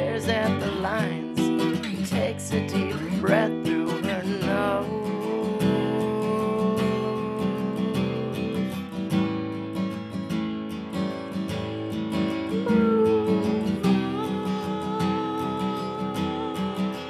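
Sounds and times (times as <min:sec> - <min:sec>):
acoustic guitar strumming: 0:00.0 - 0:17.0
long held note: 0:12.6 - 0:16.8.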